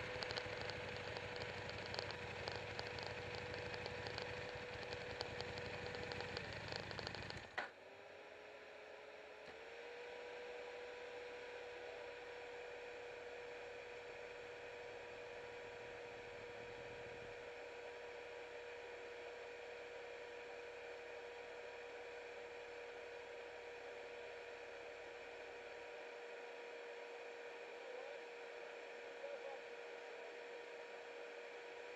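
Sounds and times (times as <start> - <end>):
high-pitched hum: 0.0 - 7.6.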